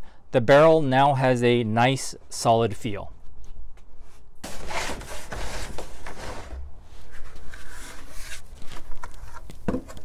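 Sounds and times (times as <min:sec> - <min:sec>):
plastic lid scraping plastic: 0:04.4 - 0:10.0.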